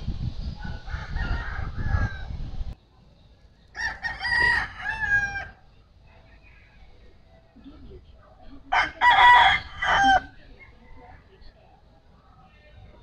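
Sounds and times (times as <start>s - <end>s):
low rumble on microphone: 0.0s - 2.8s
rooster crowing: 0.6s - 2.4s, 3.8s - 5.6s, 8.7s - 11.2s.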